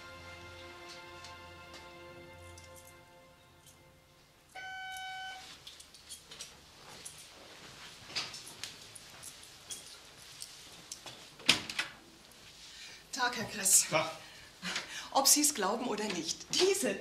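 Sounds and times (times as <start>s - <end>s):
footsteps across floor: 0.5s - 3.0s, 5.3s - 11.4s
doorbell ringing: 4.6s - 5.6s.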